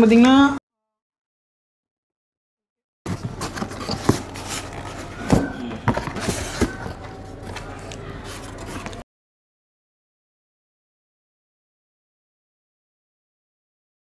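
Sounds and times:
cardboard box rustling: 3.1 - 9.0
foam insert scraping: 3.1 - 9.0.

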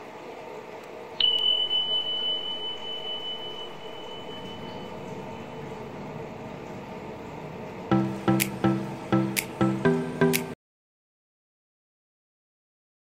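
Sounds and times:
high ringing tone: 1.2 - 6.0
low hum: 1.2 - 10.6.

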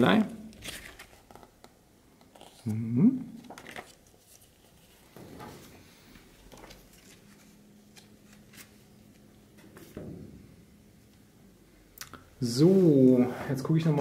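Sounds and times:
paper booklet rustling: 0.5 - 2.7, 3.4 - 10.0.

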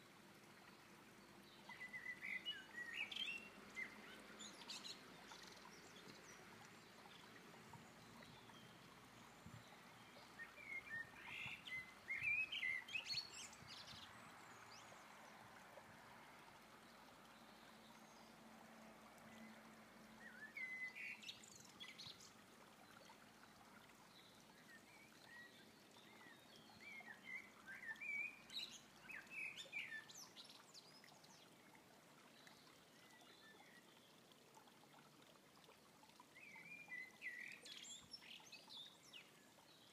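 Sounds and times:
blackbird singing: 20.2 - 21.3.

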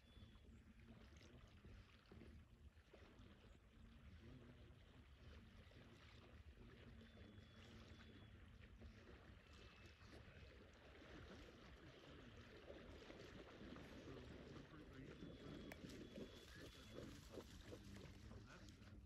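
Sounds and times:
faint high whistles: 15.1 - 17.8.

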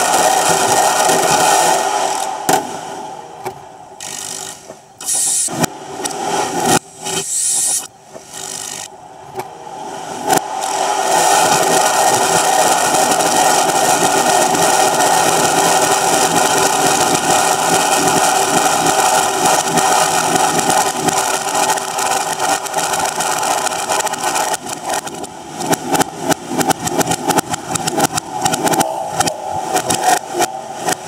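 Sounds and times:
fireworks bangs and crackles: 0.0 - 2.8, 10.4 - 31.0.

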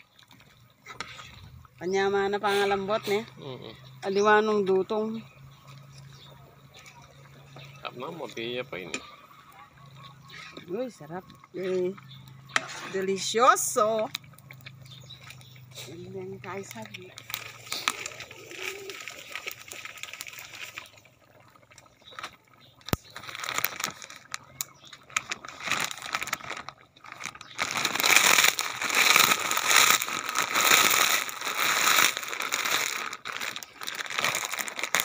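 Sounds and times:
plastic snack bag crinkling: 16.6 - 21.0, 21.6 - 35.0.

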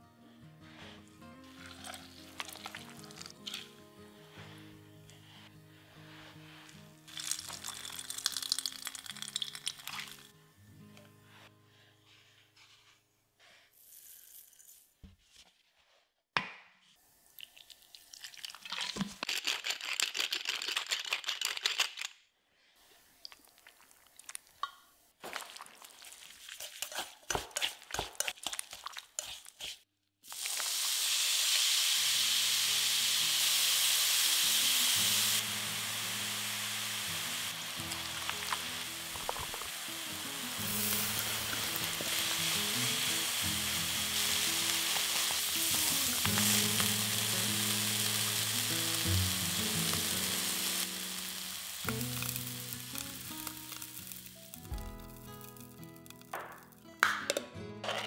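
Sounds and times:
mushrooms rustling and squelching in bowl: 1.5 - 10.3, 22.8 - 24.6, 25.2 - 30.8, 34.9 - 56.3
mushrooms sizzling in hot pan: 1.5 - 10.3, 30.2 - 56.9.

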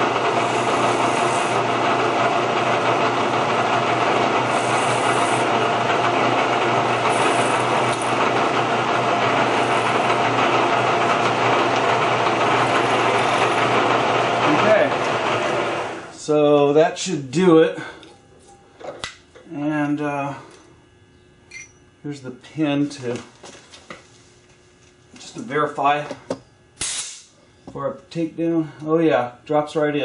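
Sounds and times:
spindle hum: 0.0 - 18.8
drill bit scraping through steel: 0.3 - 1.7, 4.4 - 5.5, 6.8 - 8.2, 9.3 - 10.3, 12.3 - 13.8.

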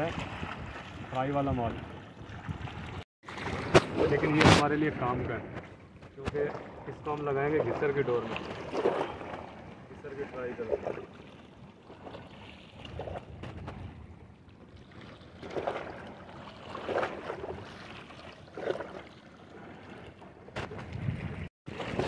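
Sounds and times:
waves washing on shore: 0.0 - 5.6
wind on microphone: 0.0 - 5.7, 12.8 - 14.2, 20.6 - 21.5.

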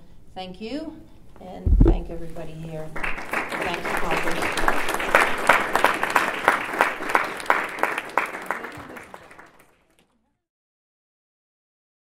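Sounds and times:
small group applauding: 3.0 - 10.3.

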